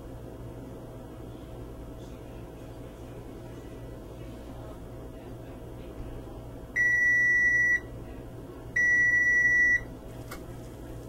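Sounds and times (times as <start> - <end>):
oven control panel beeping: 6.8 - 7.9, 8.8 - 9.9.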